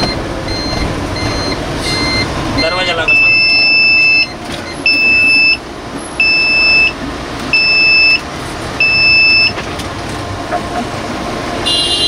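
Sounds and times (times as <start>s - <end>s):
door-open warning alarm beeping: 0.0s - 5.6s, 6.2s - 8.2s, 8.8s - 9.6s
bus engine and road noise: 0.0s - 12.0s.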